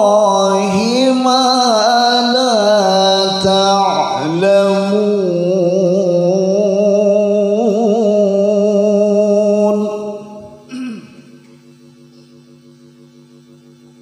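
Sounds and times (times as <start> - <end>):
man reciting melodically: 0.0 - 10.9.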